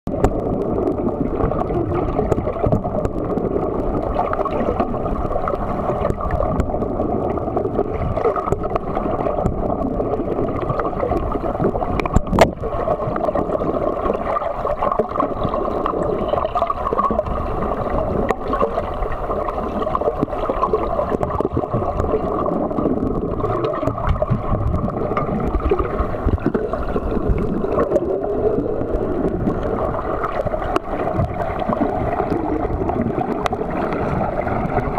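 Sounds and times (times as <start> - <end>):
underwater churning rumble: 0.1 - 34.9.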